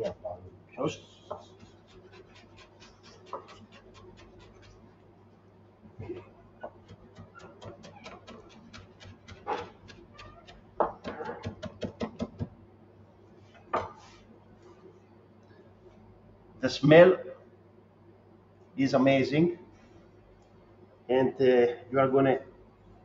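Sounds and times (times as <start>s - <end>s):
low steady hum: 0.0s - 23.0s
fast even chopping taps: 1.3s - 4.8s, 6.6s - 12.6s.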